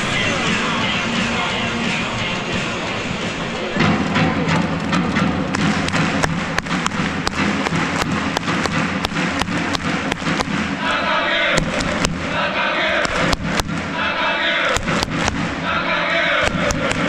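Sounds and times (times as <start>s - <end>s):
crowd chanting: 0.0s - 17.0s
crowd clapping in unison: 3.8s - 10.6s, 13.0s - 13.8s, 16.4s - 17.0s.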